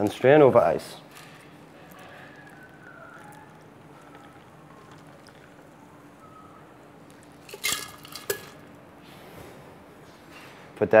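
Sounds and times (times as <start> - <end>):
cocktail trickling over ice: 1.1 - 5.9.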